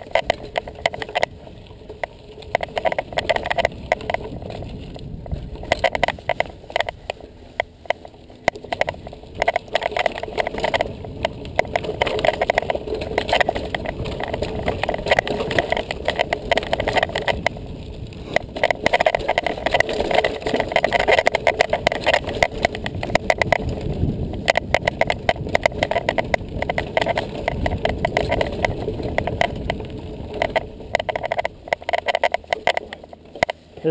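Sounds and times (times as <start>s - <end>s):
bike clicks and rattles: 0.0s - 33.9s
bike tyres rushing on dirt: 0.0s - 33.9s.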